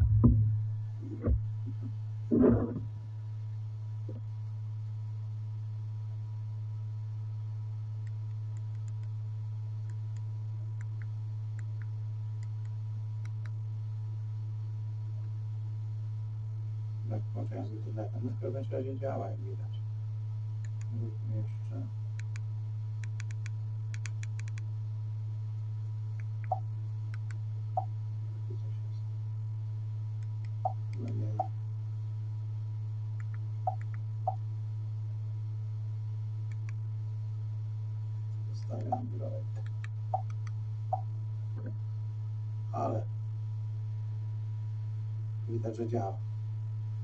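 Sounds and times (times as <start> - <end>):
projector humming: 0.0 - 47.0.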